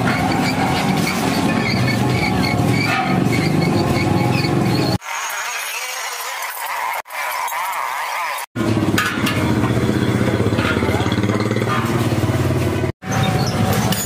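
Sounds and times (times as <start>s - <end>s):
squeaky chirping rubbing: 0.0s - 5.0s.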